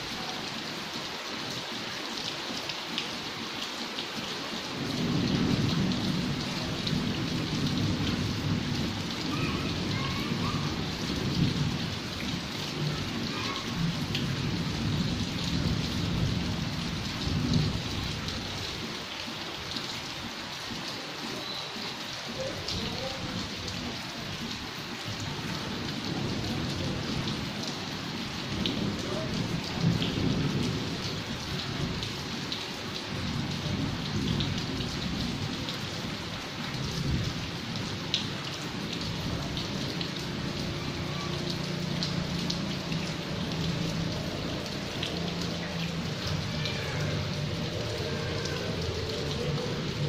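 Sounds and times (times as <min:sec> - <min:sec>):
heavy rain falling: 0:00.0 - 0:50.0.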